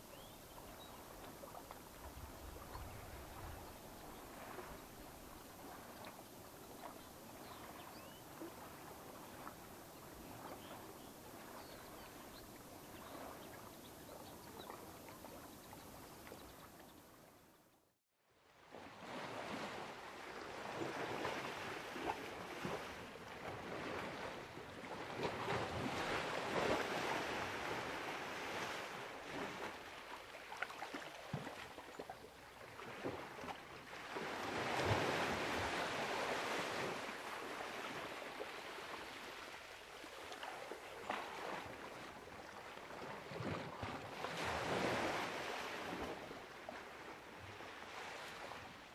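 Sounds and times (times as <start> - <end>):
small waves washing on beach: 0.0 - 17.4, 18.4 - 48.9.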